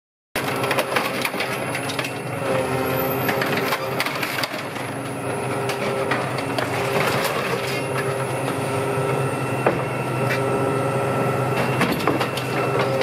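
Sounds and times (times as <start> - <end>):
bus body cracking and crunching: 0.4 - 2.2, 5.6 - 8.0
machine engine hum: 0.4 - 13.0.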